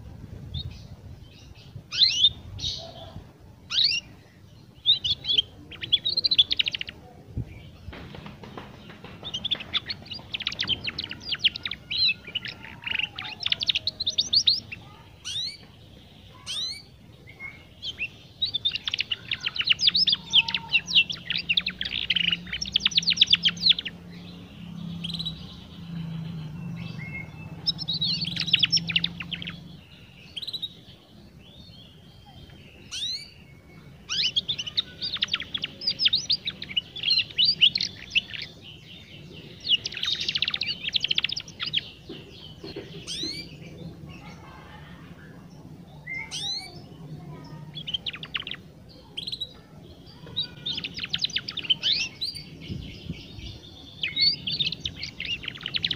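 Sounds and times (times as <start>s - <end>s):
canary twittering: 1.9s - 4.1s, 8.5s - 15.7s, 16.3s - 30.8s, 32.8s - 33.4s, 34.1s - 41.9s, 47.4s - 52.6s.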